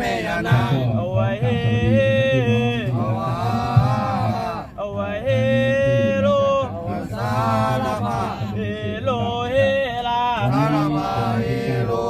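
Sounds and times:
man chanting: 0.0 - 12.0.

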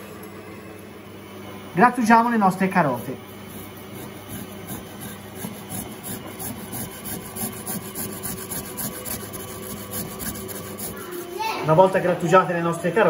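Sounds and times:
stand mixer humming: 1.8 - 12.8
carrots grating on hand grater: 2.5 - 12.1.

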